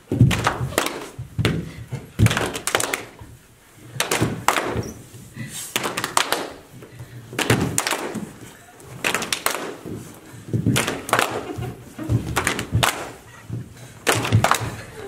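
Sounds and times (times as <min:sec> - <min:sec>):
people clapping: 0:00.2 - 0:03.2, 0:03.9 - 0:04.9, 0:05.7 - 0:15.0.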